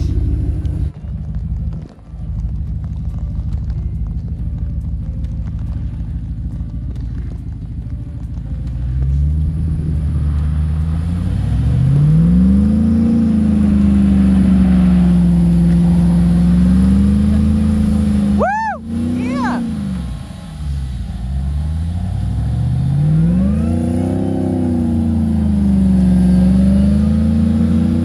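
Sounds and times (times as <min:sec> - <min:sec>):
wheels spinning in snow: 0:00.0 - 0:28.0
engines revving hard: 0:09.0 - 0:28.0.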